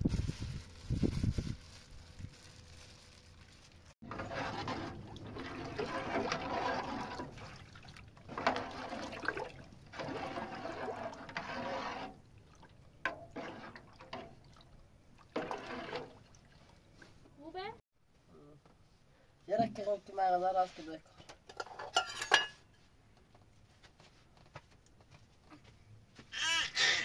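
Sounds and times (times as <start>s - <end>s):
water pouring and splashing: 0.0s - 17.2s.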